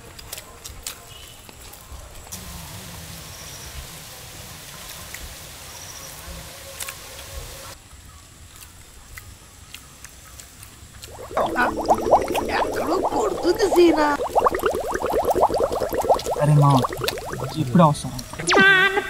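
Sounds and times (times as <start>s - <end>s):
bubbling gurgle sound effect: 11.0s - 18.6s.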